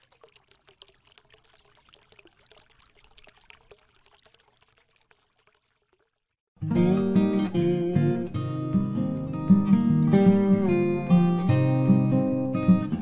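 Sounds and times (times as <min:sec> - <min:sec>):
trickling bubbling water: 0:00.0 - 0:06.6.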